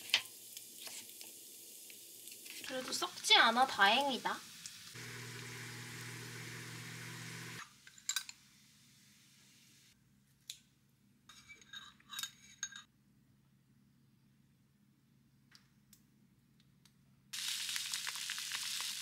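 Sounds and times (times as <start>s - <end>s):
food sizzling in a frying pan: 0.0s - 7.6s, 17.4s - 19.0s
cutlery and dishes clinking: 11.3s - 12.9s.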